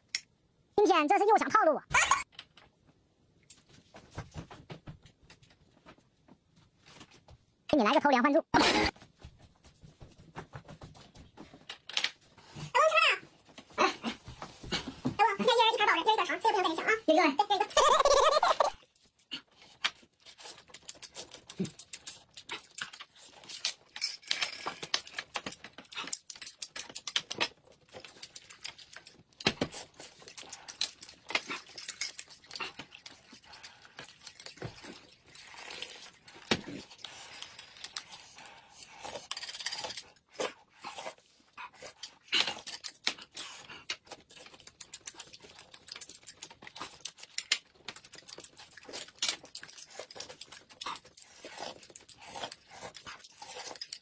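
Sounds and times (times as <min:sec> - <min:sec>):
chewing and slurping: 0:18.9 - 0:54.0.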